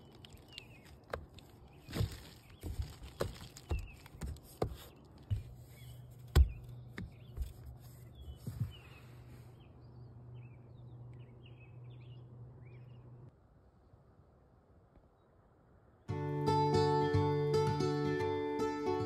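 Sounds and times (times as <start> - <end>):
birds chirping faintly: 0.0 - 14.2
low steady hum: 0.0 - 19.0
knocks and rustles inside a car: 2.0 - 5.7, 6.3 - 9.0.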